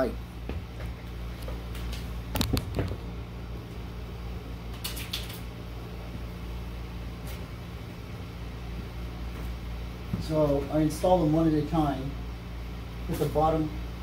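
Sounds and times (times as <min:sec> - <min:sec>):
steady low hum: 0:00.0 - 0:14.0
footsteps scuffing on floor: 0:08.7 - 0:10.7.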